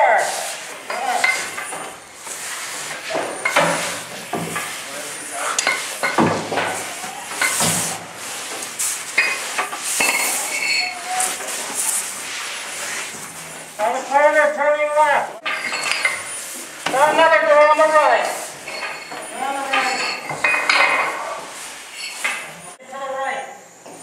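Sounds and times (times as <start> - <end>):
air mask hiss: 0.1 - 13.8
gear scraping and clanking on floor: 0.4 - 14.5, 15.4 - 22.8.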